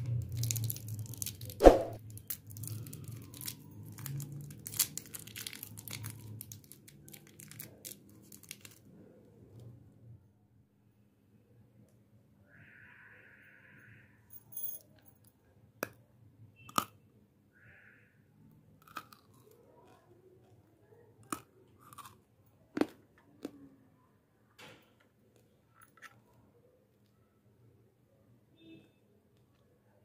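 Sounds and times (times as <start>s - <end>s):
fingers handling small candies and toys: 0.0s - 9.7s, 18.8s - 23.8s.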